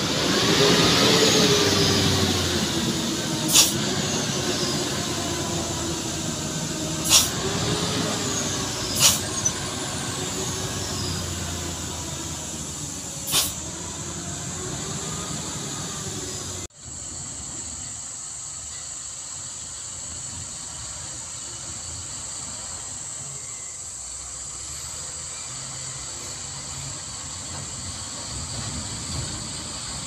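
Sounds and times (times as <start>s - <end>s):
distant truck engine rumble: 0.0s - 16.7s, 26.1s - 30.0s
constant high hiss: 16.8s - 30.0s.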